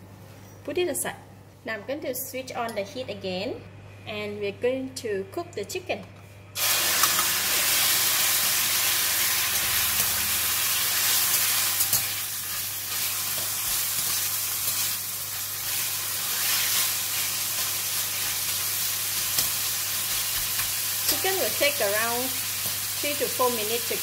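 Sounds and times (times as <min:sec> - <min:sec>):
chicken sizzling in hot oil: 0:06.6 - 0:24.0.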